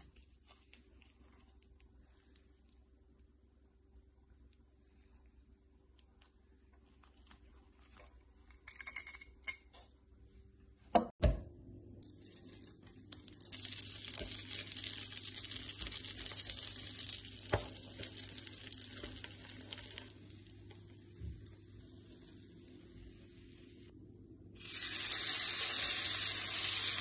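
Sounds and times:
steak sizzling: 12.1 - 23.8, 24.6 - 27.0.

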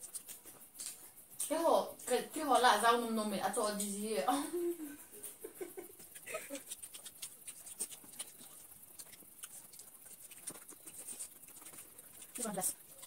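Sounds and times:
chewing and lip-smacking: 0.0 - 1.5, 6.0 - 13.0.

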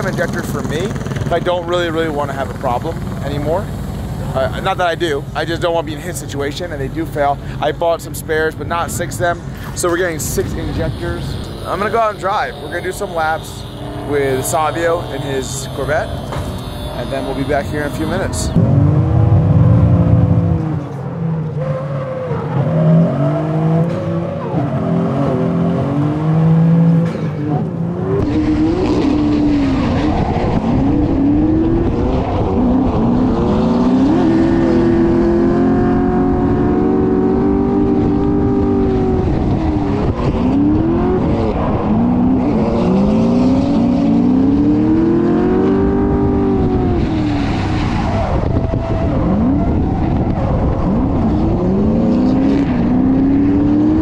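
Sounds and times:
car engines revving: 0.0 - 54.0
tire squeal: 9.7 - 18.6, 20.6 - 25.4, 28.2 - 34.8, 46.8 - 51.6.

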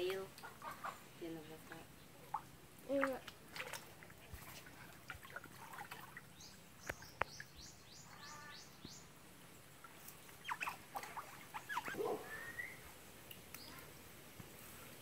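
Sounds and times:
otters chirping and squeaking: 10.3 - 12.0.

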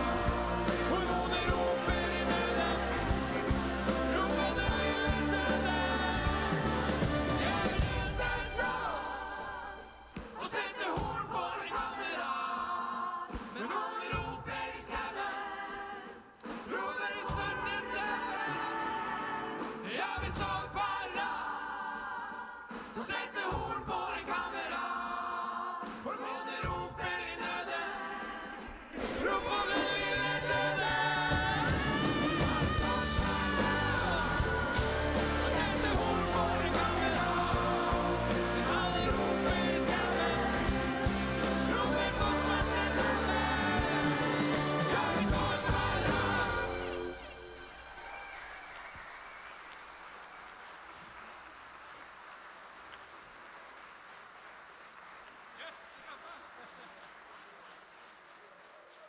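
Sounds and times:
rock band and orchestra: 0.0 - 11.6, 16.6 - 21.9, 26.7 - 48.3
choir singing: 0.0 - 48.0.

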